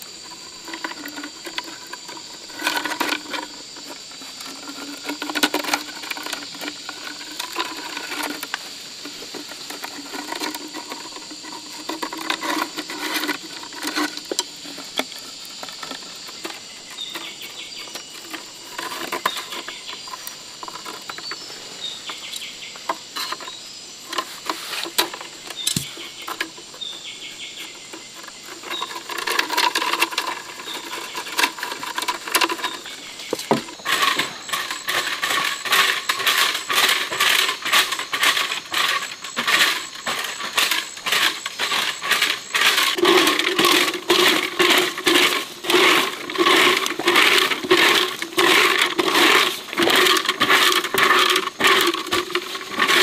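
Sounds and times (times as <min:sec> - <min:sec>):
broom sweeping dry leaves: 0:24.2 - 0:25.1, 0:29.8 - 0:53.0.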